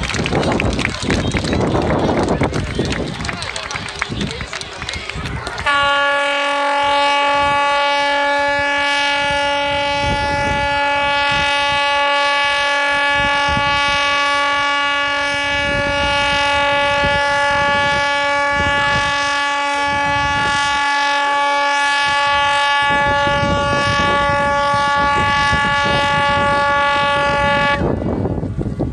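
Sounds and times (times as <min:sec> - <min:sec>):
ship's horn long blast: 0:05.6 - 0:28.6.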